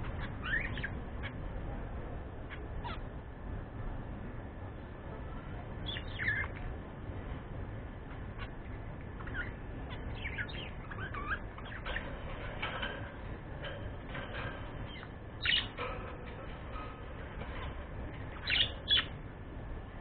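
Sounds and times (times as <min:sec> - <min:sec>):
budgerigars chirping: 0:00.0 - 0:01.0, 0:05.9 - 0:06.6, 0:08.4 - 0:12.8, 0:14.1 - 0:15.9, 0:17.4 - 0:19.2
budgerigars squawking: 0:18.3 - 0:19.1.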